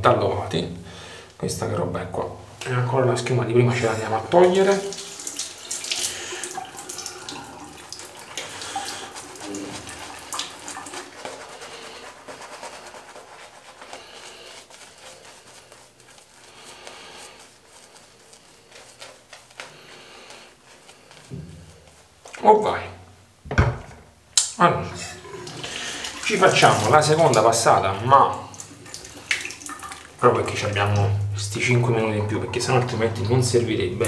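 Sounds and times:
shaving brush swishing foam: 0:03.8 - 0:22.4, 0:25.4 - 0:30.7.

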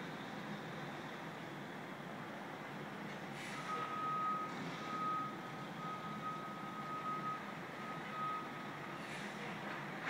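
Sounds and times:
truck reversing alarm beeping: 0:03.5 - 0:09.0.

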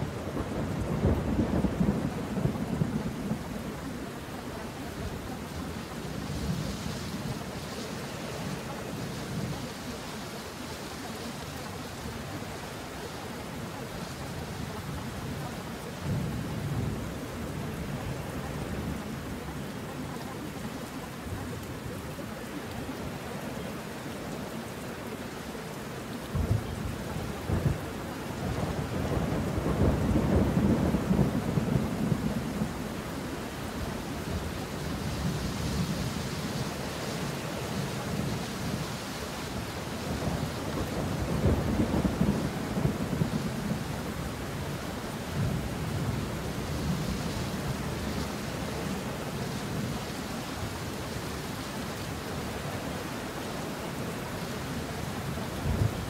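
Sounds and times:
rolling thunder: 0:00.0 - 0:04.4, 0:26.3 - 0:33.1, 0:39.6 - 0:48.1
steady rain: 0:00.0 - 0:56.0.

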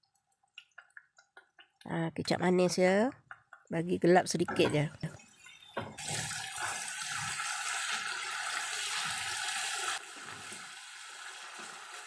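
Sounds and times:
spice paste sizzling in pan: 0:06.0 - 0:12.0.

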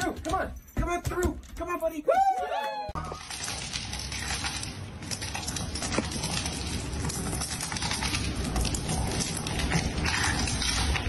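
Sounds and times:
animals crunching kibble on metal: 0:03.1 - 0:11.0.

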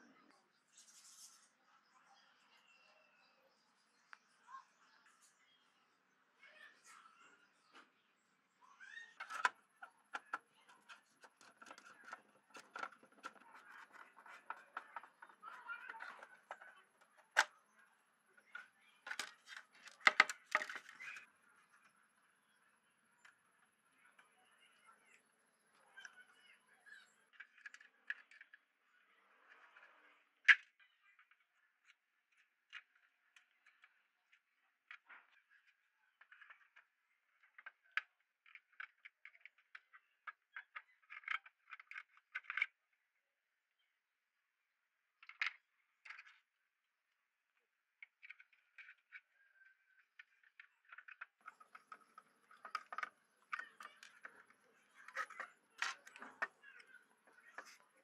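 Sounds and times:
plastic knocks and rattles: 0:09.1 - 0:17.6, 0:18.4 - 0:21.2, 0:50.2 - 0:57.8
plastic clicks and taps: 0:09.2 - 0:17.6, 0:18.5 - 0:21.3, 0:50.2 - 0:57.8.

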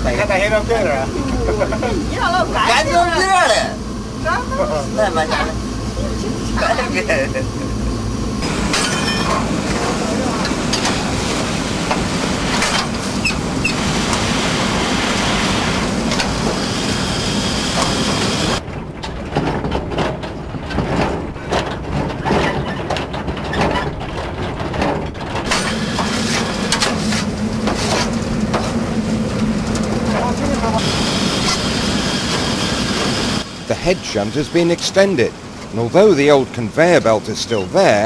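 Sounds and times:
low hum: 0:00.0 - 0:22.2, 0:22.9 - 0:37.8
steam locomotive running: 0:00.0 - 0:38.0
wagons rattling on track: 0:00.0 - 0:38.0.

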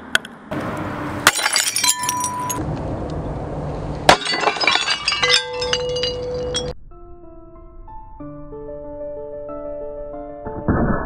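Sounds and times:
ceramic shards tinkling: 0:01.3 - 0:02.6, 0:04.1 - 0:06.7
sledgehammer smashing ceramic mug: 0:01.3 - 0:02.6, 0:04.1 - 0:06.7.

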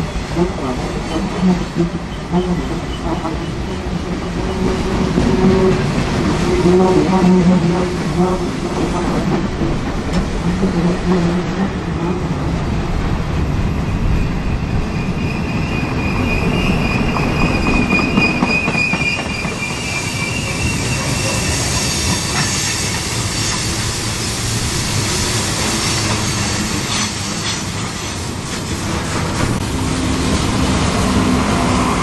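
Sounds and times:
freight train rumbling: 0:00.0 - 0:32.0
train wheels squealing: 0:13.8 - 0:23.9.

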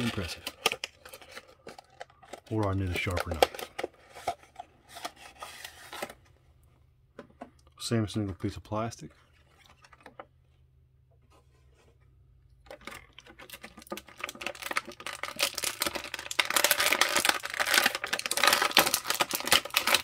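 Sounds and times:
plastic packaging crinkling: 0:00.0 - 0:06.2, 0:12.6 - 0:20.0.

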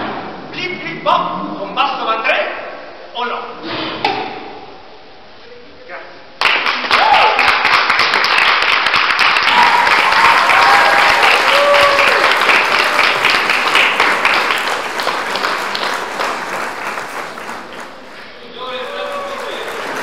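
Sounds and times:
audience applauding: 0:06.4 - 0:20.0.

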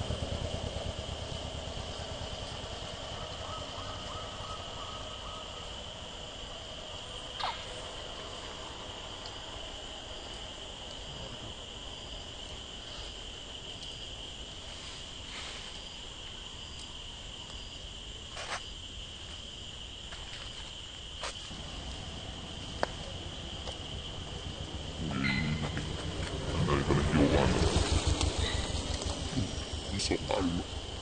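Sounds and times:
insect chorus droning: 0:00.0 - 0:31.0
faint chirps: 0:07.2 - 0:08.3, 0:21.5 - 0:30.7.

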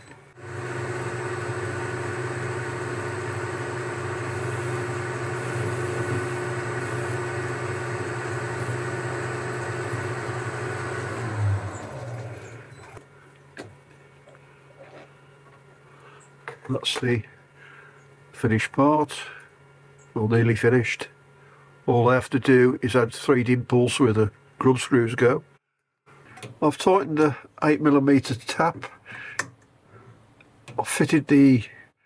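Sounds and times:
metal lathe running: 0:00.3 - 0:13.0.

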